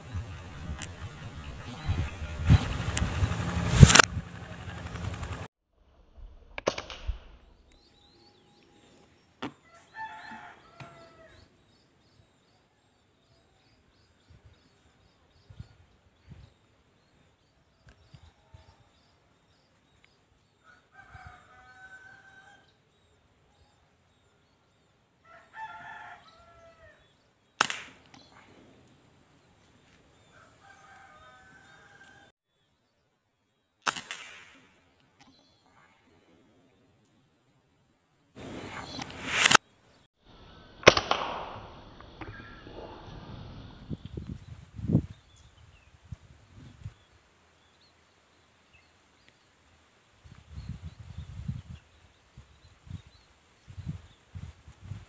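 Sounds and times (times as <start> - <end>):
air rifle crack: 2.8 - 4.2, 27.6 - 28.5, 33.8 - 34.8, 38.4 - 39.6, 40.8 - 42.3
rooster crowing: 9.6 - 11.5, 20.6 - 22.7, 25.2 - 27.0, 30.3 - 32.3
small birds chirping: 38.4 - 40.8.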